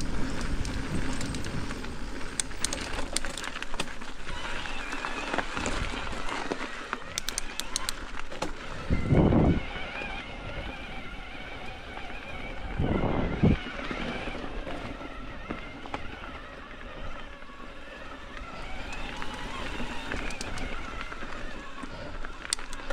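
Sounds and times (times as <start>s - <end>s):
bike tyres on dirt trail: 0.0s - 22.9s
sharp clicks: 7.1s - 8.6s, 18.9s - 20.8s, 22.5s - 22.9s.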